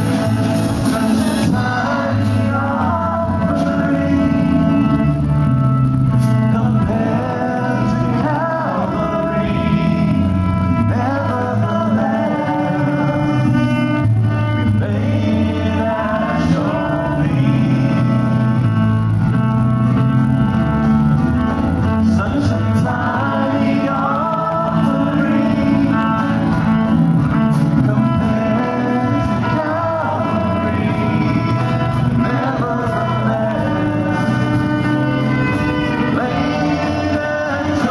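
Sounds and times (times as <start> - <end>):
drums with cymbals: 0.0 - 2.5
group of voices singing: 0.0 - 19.2, 21.1 - 37.9
electric bass guitar: 0.0 - 37.9.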